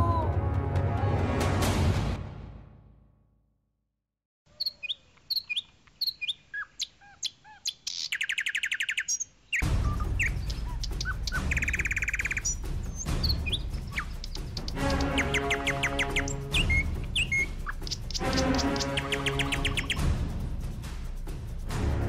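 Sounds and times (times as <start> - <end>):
music: 0.0 - 3.4, 9.6 - 22.0
small birds chirping and trilling: 4.5 - 20.2
outdoor background noise: 4.5 - 22.0.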